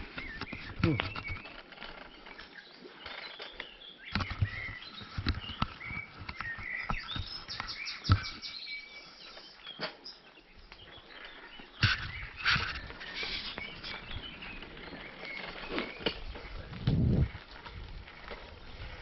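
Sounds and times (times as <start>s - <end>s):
bicycle tyres on gravel: 0.0s - 19.0s
small birds chirping: 0.0s - 19.0s
bicycle clicks and knocks: 3.0s - 8.4s.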